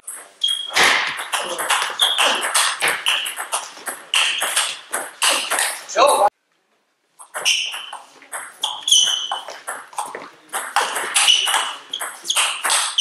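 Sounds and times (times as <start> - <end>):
shoes squeaking on floor: 0.0 - 6.3, 7.2 - 13.0
table tennis ball clicking: 1.2 - 5.8, 7.2 - 13.0.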